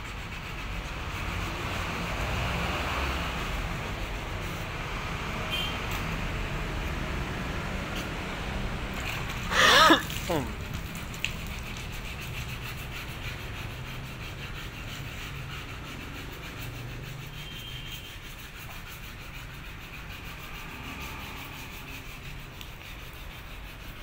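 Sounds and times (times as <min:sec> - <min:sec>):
hand sanding rasping rub: 0:00.0 - 0:05.4, 0:10.3 - 0:24.0.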